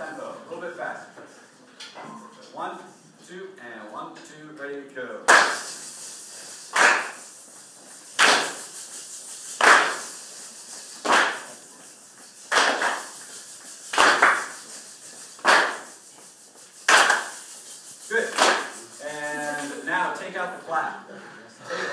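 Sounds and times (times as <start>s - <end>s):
group clapping in unison: 5.3s - 16.0s, 16.7s - 19.8s.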